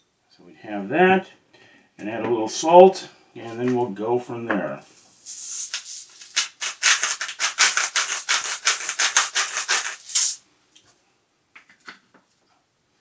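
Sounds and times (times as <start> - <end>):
salt grinder crunching: 5.3 - 10.4.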